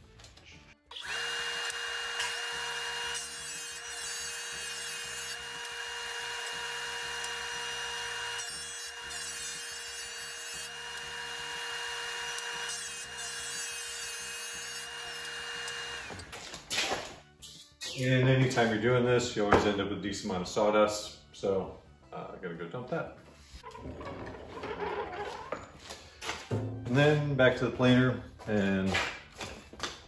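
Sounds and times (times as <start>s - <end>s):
boards being cut: 0.9s - 16.4s
jointer whining: 0.9s - 16.4s.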